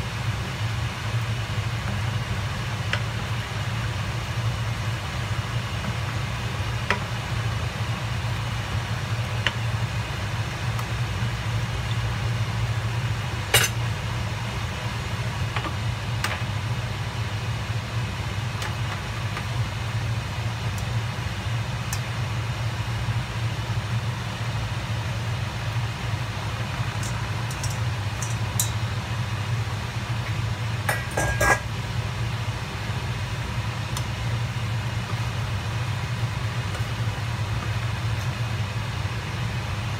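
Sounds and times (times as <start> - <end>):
utensil clicking against frying pan: 27.0 - 28.8.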